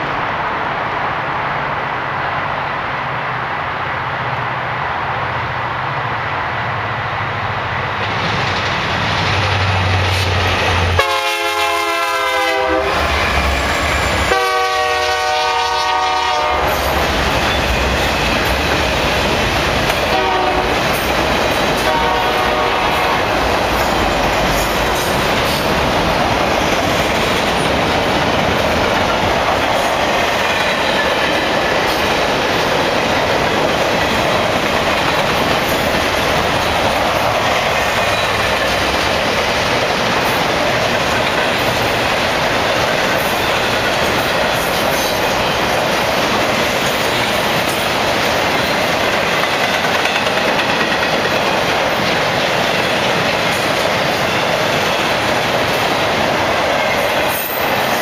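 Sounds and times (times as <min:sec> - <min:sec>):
diesel locomotives rumbling: 0:00.0 - 0:58.0
train wheels clickety-clack: 0:07.6 - 0:58.0
train horn blasts: 0:11.0 - 0:13.1, 0:14.2 - 0:16.9, 0:20.1 - 0:20.9, 0:21.8 - 0:23.4.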